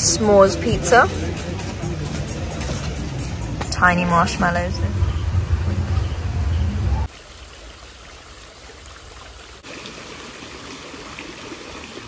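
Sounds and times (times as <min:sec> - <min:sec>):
music: 0:00.0 - 0:05.8
voices: 0:00.0 - 0:07.1
fountain water splashing into pool: 0:07.1 - 0:12.0.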